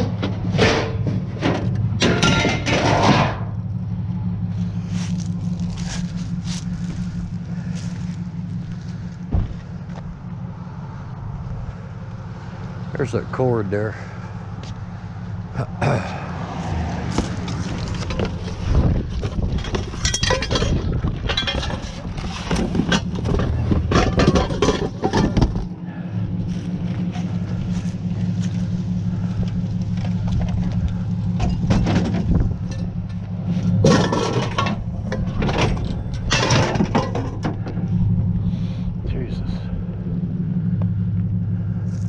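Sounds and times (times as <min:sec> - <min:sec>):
scrap clanking into truck bed: 0:00.0 - 0:03.6, 0:17.1 - 0:25.8, 0:31.4 - 0:37.9
truck engine idling: 0:00.0 - 0:42.0.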